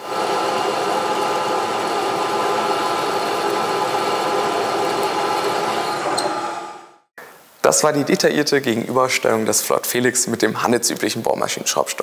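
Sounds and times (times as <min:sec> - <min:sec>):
pillar drill boring into metal: 0:00.0 - 0:06.6.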